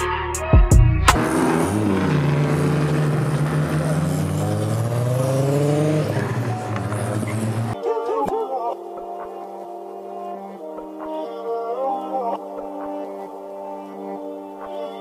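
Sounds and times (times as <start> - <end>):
hip-hop beat: 0.0 - 1.2
car engine accelerating: 1.0 - 7.8.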